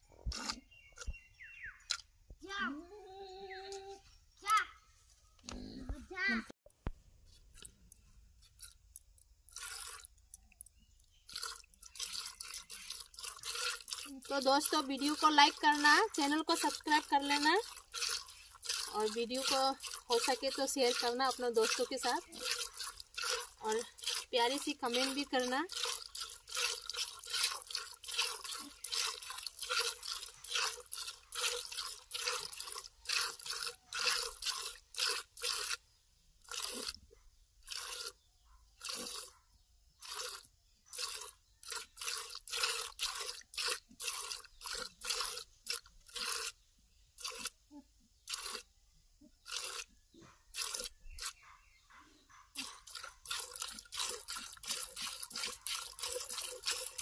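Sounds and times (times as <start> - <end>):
milk squirting into plastic bucket: 8.4 - 35.8, 36.4 - 37.0, 37.6 - 38.2, 38.8 - 39.3, 40.0 - 46.6, 47.2 - 47.6, 48.2 - 48.7, 49.4 - 49.9, 50.5 - 51.4, 52.6 - 57.0.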